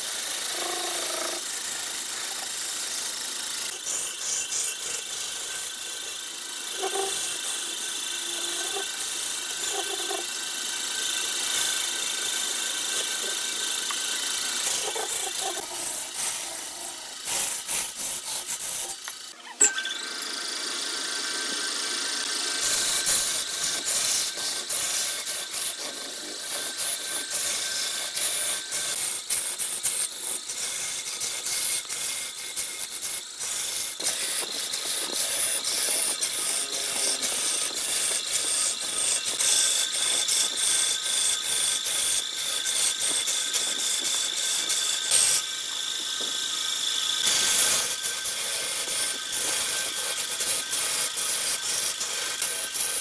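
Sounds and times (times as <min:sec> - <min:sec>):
lathe tool scraping wood: 0:00.0 - 0:53.0
thin high tone: 0:18.8 - 0:20.5.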